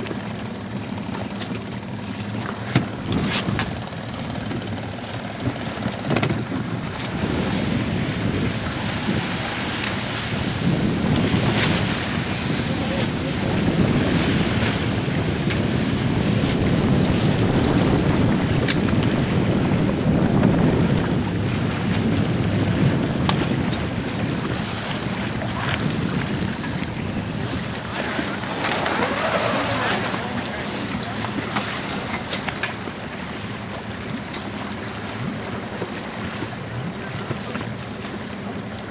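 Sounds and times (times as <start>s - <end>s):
wash of open water: 0.0s - 38.9s
wind noise on microphone: 2.8s - 4.8s, 5.4s - 31.6s.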